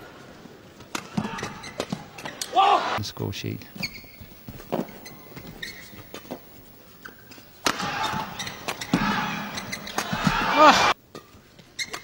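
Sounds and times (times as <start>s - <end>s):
shoe squeaks on court: 1.4s - 2.5s, 3.8s - 7.4s, 8.0s - 10.2s, 11.7s - 12.0s
racket hitting shuttlecock: 7.3s - 10.7s
crowd noise: 7.6s - 11.0s.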